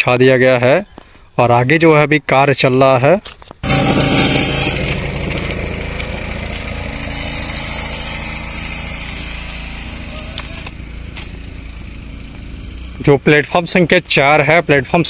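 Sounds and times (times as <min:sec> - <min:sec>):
diesel engine rumbling: 0:03.6 - 0:15.0.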